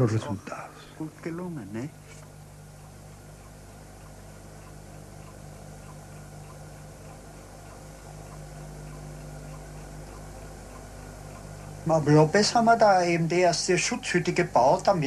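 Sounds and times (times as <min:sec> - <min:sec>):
low electrical hum: 0:00.0 - 0:15.0
faint small ticks: 0:01.8 - 0:15.0.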